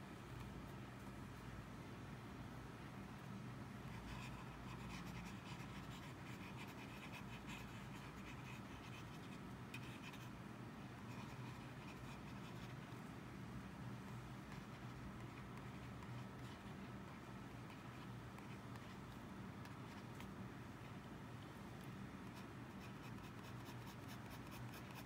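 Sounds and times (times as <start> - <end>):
steady low hum: 0.0 - 25.0
pen nib scratching on paper: 3.9 - 10.4, 11.0 - 13.0, 14.4 - 20.4, 22.2 - 25.0.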